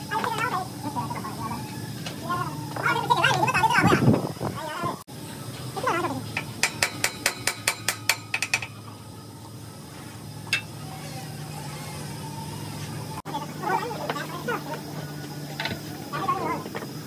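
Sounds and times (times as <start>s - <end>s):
low steady hum: 0.0s - 16.7s
hammer striking steel bar: 6.4s - 8.7s.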